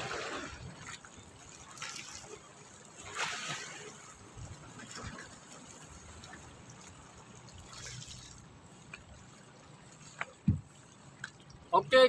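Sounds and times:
water lapping against rocks: 0.0s - 11.7s.

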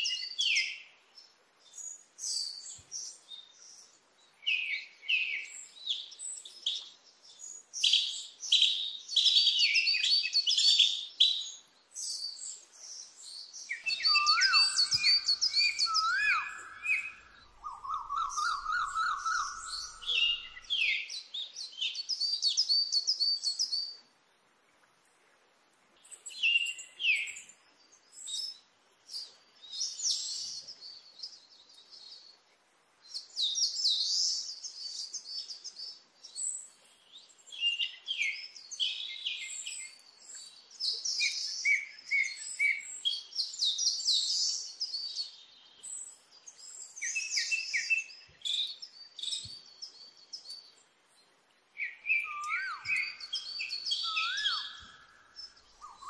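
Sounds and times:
birds chirping and singing: 12.9s - 22.7s, 51.8s - 56.0s.

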